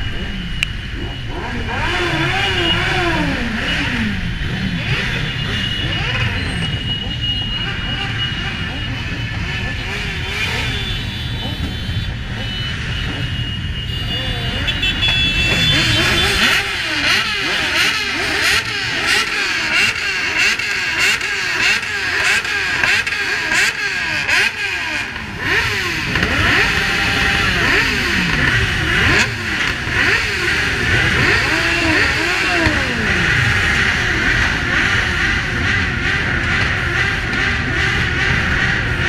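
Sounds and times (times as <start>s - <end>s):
motorcycles revving engines: 0.0s - 39.0s.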